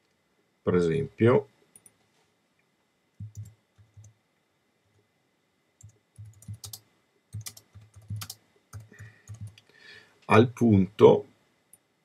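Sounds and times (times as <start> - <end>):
typing on computer keyboard: 3.2 - 4.2, 5.8 - 9.6.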